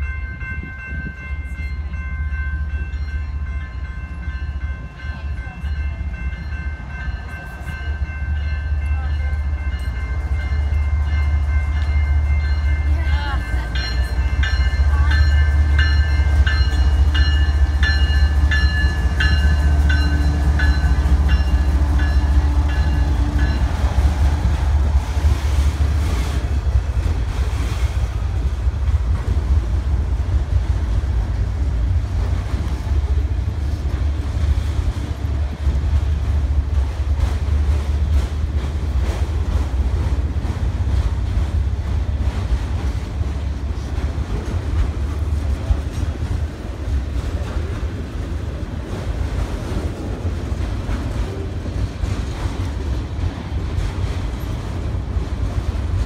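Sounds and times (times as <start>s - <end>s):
warning bell ringing: 0.0s - 23.8s
freight train rumbling past: 0.0s - 56.0s.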